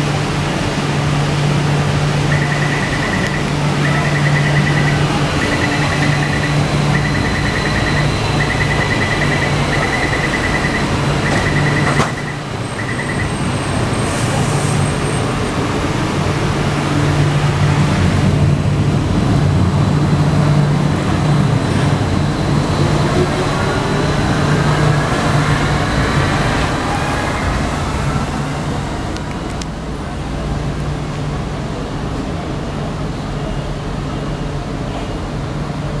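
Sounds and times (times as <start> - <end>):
low train hum: 0.0 - 36.0
high rapid warning beeps: 2.2 - 14.0
train doors shutting knock: 5.6 - 13.4.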